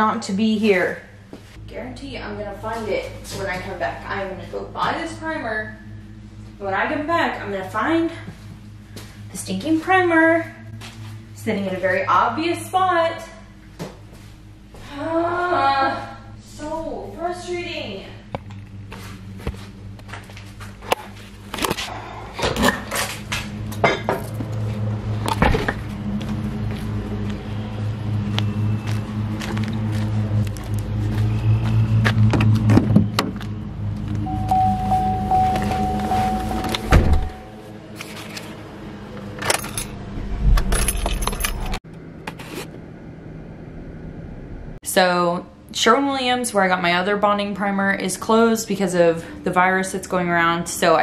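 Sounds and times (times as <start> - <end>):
steady low hum: 0.0 - 51.0
car door shutting: 34.4 - 37.4
car keys jangling: 39.4 - 41.8.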